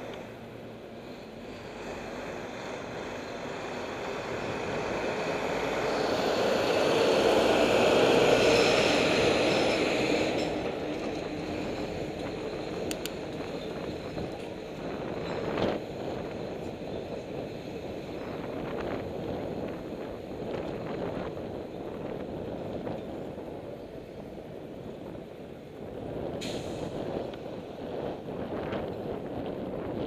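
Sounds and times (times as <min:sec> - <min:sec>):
heavy truck driving past: 0:00.0 - 0:16.9.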